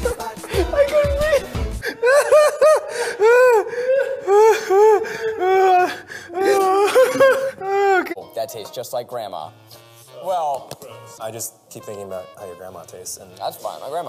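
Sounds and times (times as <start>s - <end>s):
men laughing hard: 0.0s - 8.2s.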